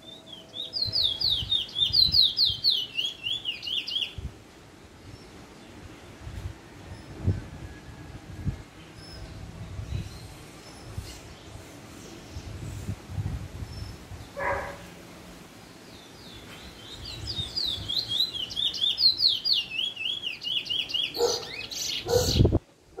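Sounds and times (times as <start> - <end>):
bird singing warbling whistles: 17.3 - 22.5.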